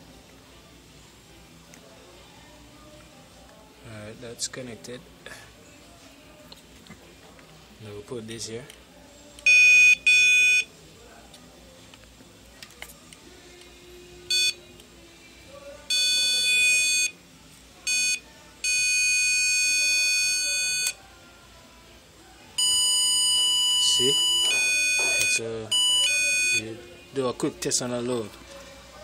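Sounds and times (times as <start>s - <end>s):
circuit tester beeps: 9.4s - 10.7s, 14.3s - 14.6s, 15.9s - 17.2s, 17.9s - 21.0s, 22.6s - 26.6s.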